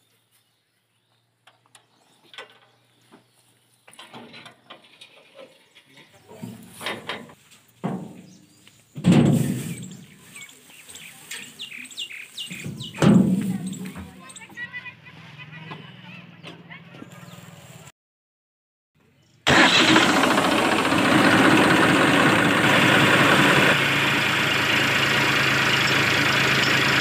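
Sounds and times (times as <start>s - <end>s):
birds chirping: 0.0s - 6.7s, 8.1s - 17.8s
knocks and thumps on metal thresher: 6.5s - 8.3s, 9.0s - 9.8s, 12.6s - 14.0s.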